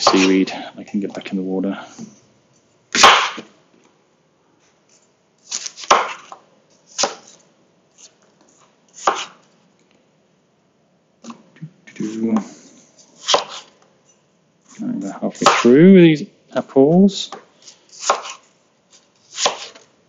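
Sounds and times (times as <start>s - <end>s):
knife cutting apples on board: 0.0s - 0.4s, 3.0s - 3.5s, 4.9s - 8.2s, 8.9s - 9.5s, 12.0s - 13.8s, 14.6s - 15.8s, 17.3s - 19.9s.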